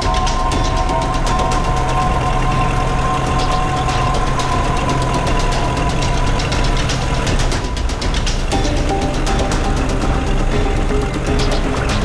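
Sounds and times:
motorboat engine droning: 0.0 - 12.0.

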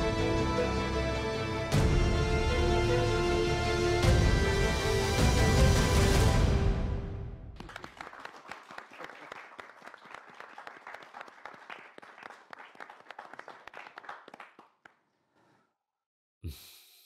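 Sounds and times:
group applauding: 7.6 - 15.1.

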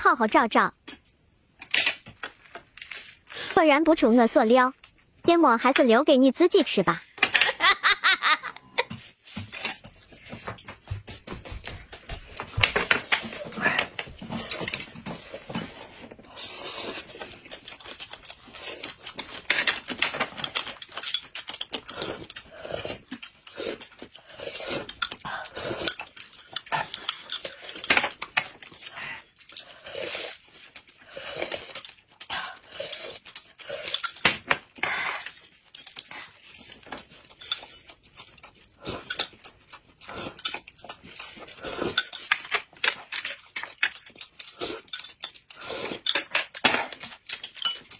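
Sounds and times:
noodles slurping: 13.1 - 19.3, 21.4 - 27.9, 28.6 - 34.1, 35.0 - 47.6
chewing: 13.1 - 47.9
utensils clicking against dishes: 18.9 - 22.5, 40.4 - 47.9.

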